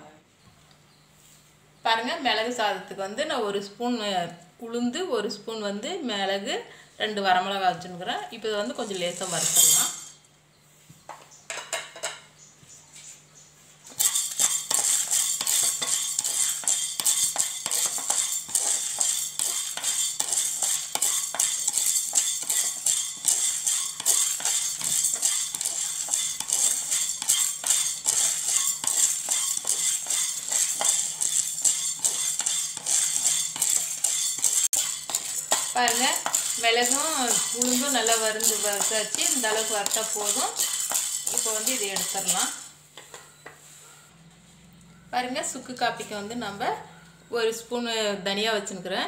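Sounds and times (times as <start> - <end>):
grains rattling in a wok: 8.7 - 10.1, 13.9 - 42.8.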